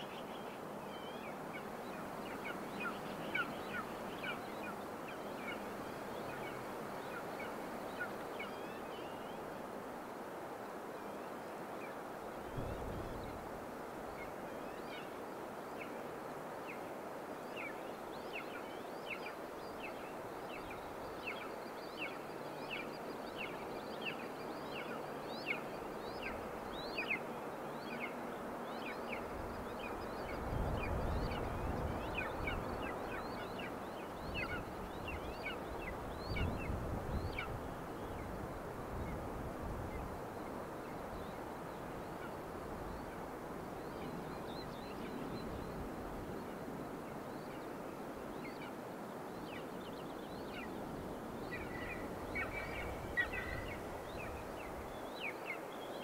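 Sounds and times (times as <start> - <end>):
wind rumbling on microphone: 12.4 - 14.5, 29.0 - 48.6, 49.4 - 55.1.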